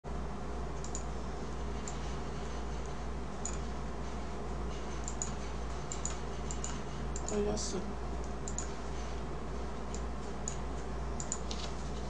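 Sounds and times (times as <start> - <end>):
low electrical hum: 0.0 - 12.0
computer mouse clicks: 0.8 - 1.1, 3.4 - 3.7, 5.0 - 7.4, 8.2 - 8.8, 9.9 - 10.6, 11.2 - 11.7.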